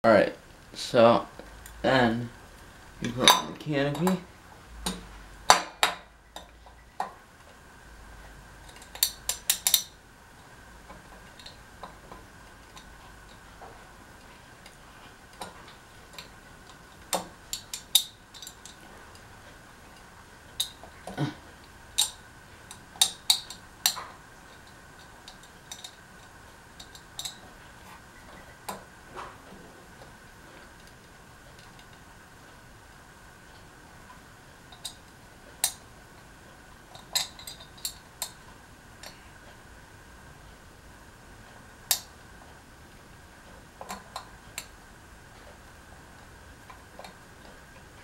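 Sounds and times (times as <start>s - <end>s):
metallic clicks and clinks: 8.6s - 10.0s, 14.6s - 19.2s, 21.6s - 27.5s, 36.9s - 38.4s.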